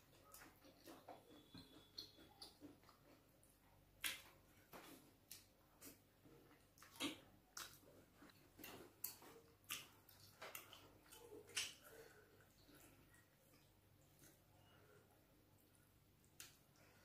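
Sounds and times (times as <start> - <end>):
wet mouth clicks and smacks: 4.0 - 4.3, 11.5 - 12.0.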